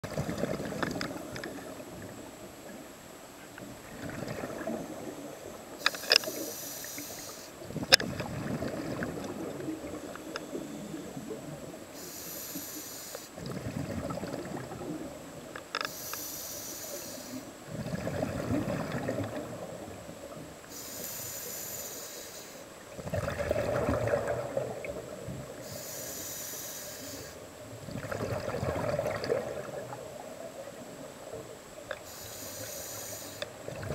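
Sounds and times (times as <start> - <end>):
exhaled bubbles rumbling: 0.0 - 2.8, 3.6 - 5.8, 7.6 - 11.9, 13.4 - 15.5, 17.6 - 20.6, 22.9 - 25.6, 27.7 - 31.6, 33.6 - 33.9
diver breathing through regulator: 5.8 - 7.6, 12.0 - 13.5, 15.8 - 17.5, 20.7 - 22.7, 25.6 - 27.4, 32.0 - 33.5.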